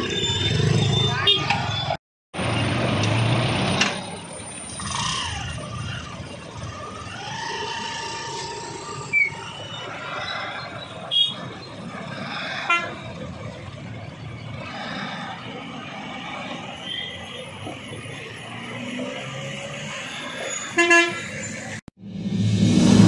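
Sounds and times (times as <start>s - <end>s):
motorcycle and truck engines: 0.0s - 23.0s
vehicle horn: 20.8s - 21.3s.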